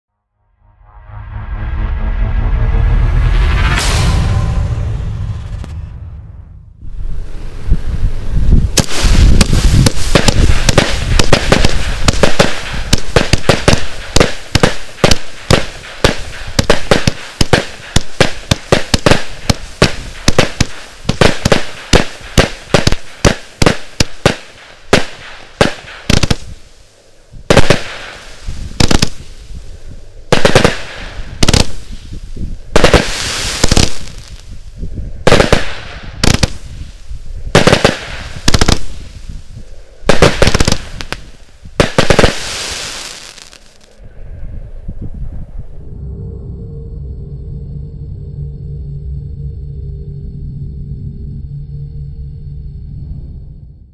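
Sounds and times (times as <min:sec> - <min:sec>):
firework hiss: 0:07.0 - 0:44.0
firework pops and bursts: 0:08.7 - 0:26.6, 0:27.5 - 0:29.3, 0:30.3 - 0:32.1, 0:32.8 - 0:34.4, 0:35.3 - 0:36.7, 0:37.5 - 0:39.1, 0:40.1 - 0:43.9.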